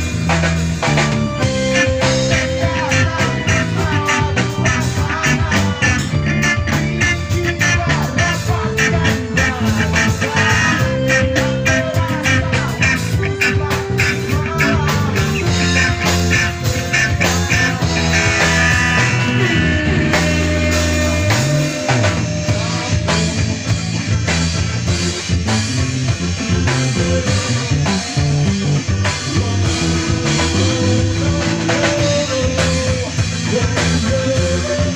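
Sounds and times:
live rock band playing: 0.0 - 34.9
low sliding note: 17.7 - 24.9.

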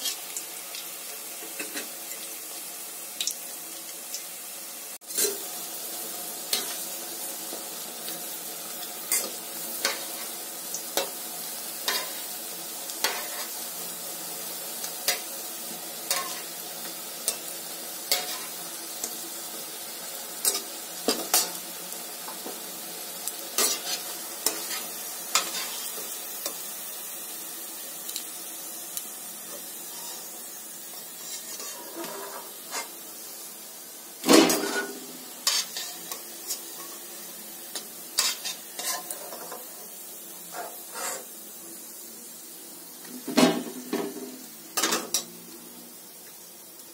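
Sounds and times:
food sizzling in hot oil: 0.0 - 46.9
metal spatula scraping pan: 13.0 - 13.6, 23.6 - 26.0, 29.8 - 30.3, 31.2 - 33.0, 34.3 - 37.0, 38.2 - 39.7, 40.5 - 41.3.

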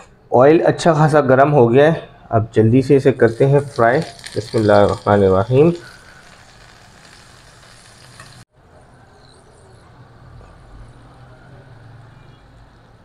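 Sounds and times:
fish frying in hot oil: 3.2 - 8.5.

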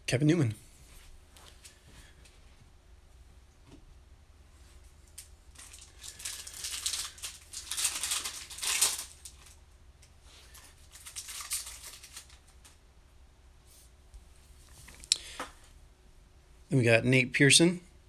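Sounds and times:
foil wrapper tearing and crinkling: 5.5 - 9.6, 10.4 - 12.8.

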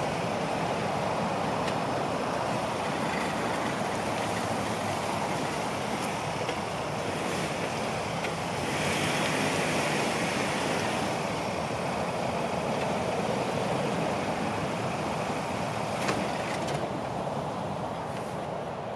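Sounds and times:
truck engine revving: 2.4 - 16.6.

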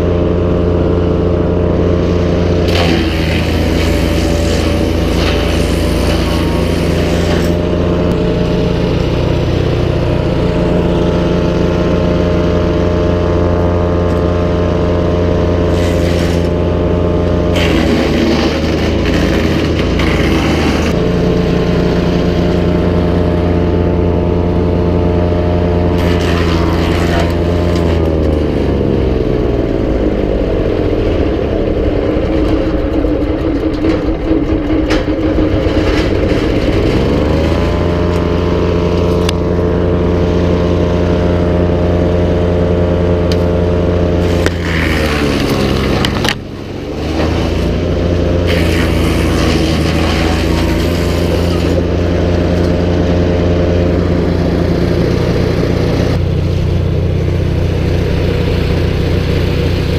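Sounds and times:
wood chipper engine running: 0.0 - 59.9
wood cracking being chipped: 2.6 - 7.6, 17.5 - 21.0, 26.0 - 28.4, 44.2 - 47.8, 48.4 - 51.8.

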